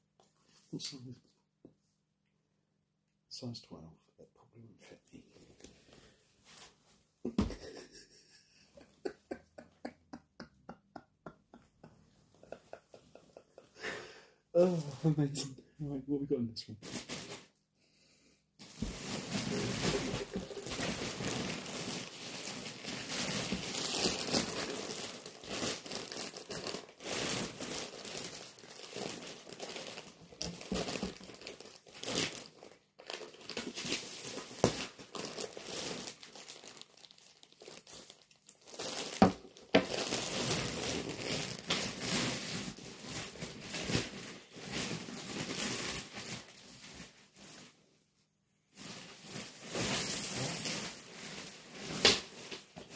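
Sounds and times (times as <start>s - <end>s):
plastic bag crinkling: 18.6s - 47.7s.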